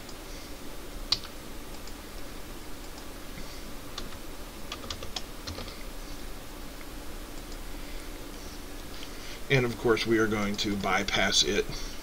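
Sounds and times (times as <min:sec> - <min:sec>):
computer mouse clicking: 0:01.1 - 0:02.0, 0:04.0 - 0:05.8
keyboard keystrokes: 0:04.0 - 0:05.7.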